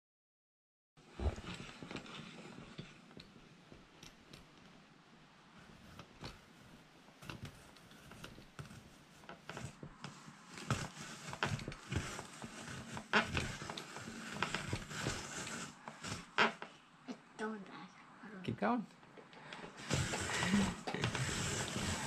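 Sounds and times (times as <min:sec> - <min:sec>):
blade scraping apple peel: 0:07.5 - 0:16.6, 0:19.8 - 0:22.0.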